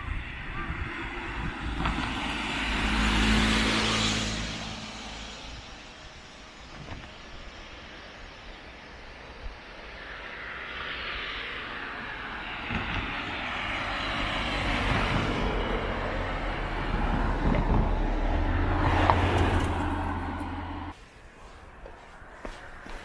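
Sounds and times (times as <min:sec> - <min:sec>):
vehicle passing by: 0:00.1 - 0:06.3, 0:10.0 - 0:21.0
low engine hum: 0:11.4 - 0:21.0.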